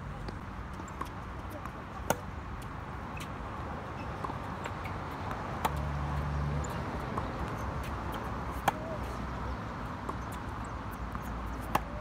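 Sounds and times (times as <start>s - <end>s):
tennis ball bouncing: 0.2s - 3.3s, 4.0s - 12.0s
racket hitting tennis ball: 7.1s - 9.2s, 10.0s - 12.0s.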